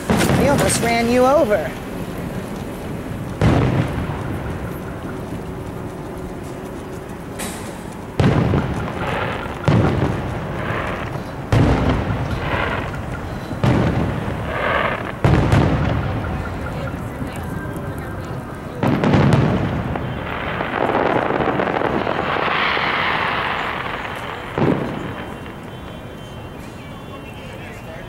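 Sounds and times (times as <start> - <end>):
fireworks booming: 0.0 - 28.0.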